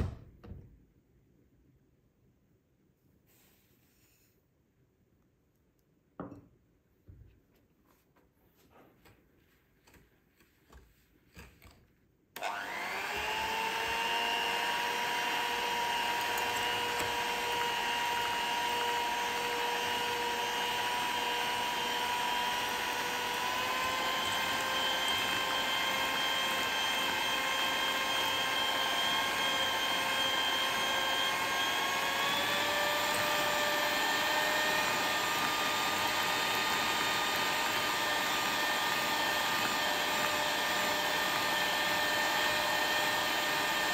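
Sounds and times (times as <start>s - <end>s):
electric mixer whining: 12.4s - 43.9s.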